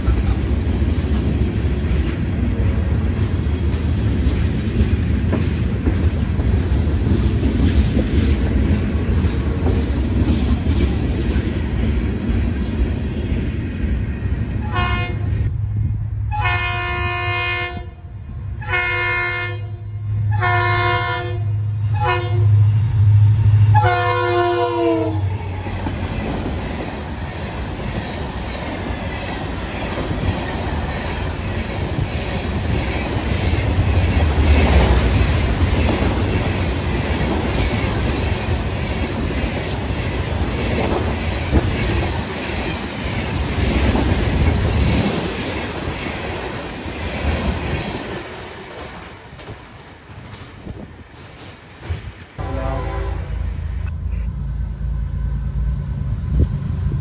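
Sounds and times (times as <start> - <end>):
freight cars rumbling and clattering: 0.0 - 14.6
diesel locomotive engine rumbling: 0.0 - 57.0
locomotive horn blasts: 14.6 - 15.4, 16.3 - 18.0, 18.6 - 22.6, 23.7 - 25.3, 52.4 - 54.2.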